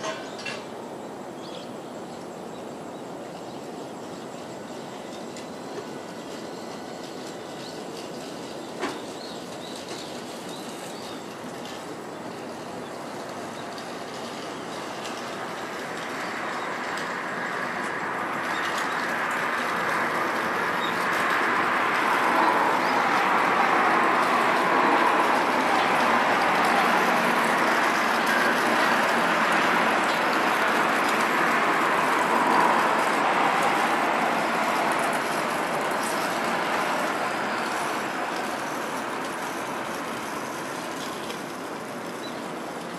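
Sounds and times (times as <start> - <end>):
vehicle passing: 16.8 - 38.4.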